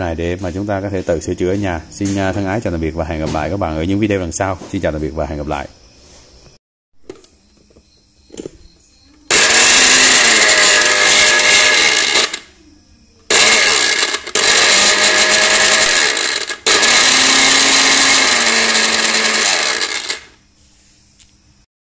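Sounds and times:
electric blender motor running: 9.3s - 12.5s, 13.3s - 20.4s.

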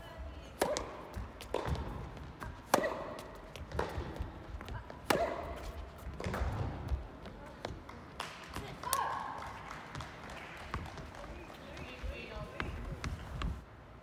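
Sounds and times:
tennis ball hits: 0.5s - 7.0s.

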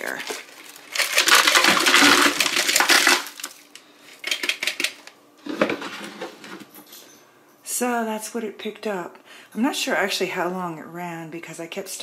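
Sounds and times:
debris rattling into plastic wastebasket: 0.0s - 3.6s.

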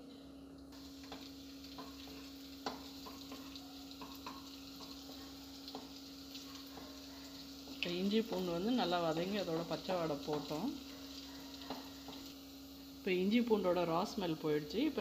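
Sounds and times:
garlic sizzling in oil: 0.8s - 15.0s
spatula scraping and tapping pan: 1.0s - 8.5s, 10.2s - 10.6s, 11.6s - 12.3s.

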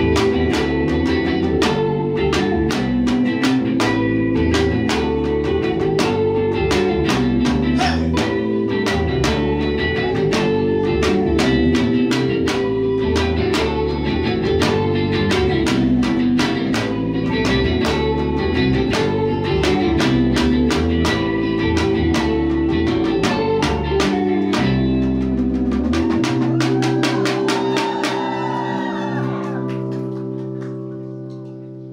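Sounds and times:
live rock band playing: 0.0s - 31.9s.

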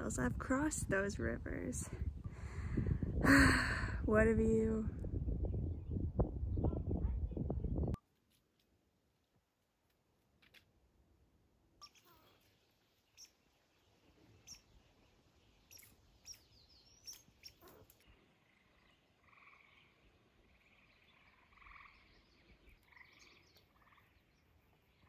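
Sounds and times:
frog trilling: 18.4s - 19.9s, 20.6s - 22.1s.

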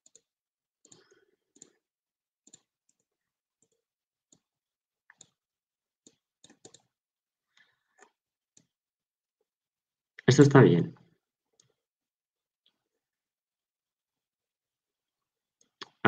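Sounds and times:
computer mouse clicks: 0.0s - 1.8s, 2.4s - 4.5s, 5.1s - 5.4s, 6.0s - 7.0s.

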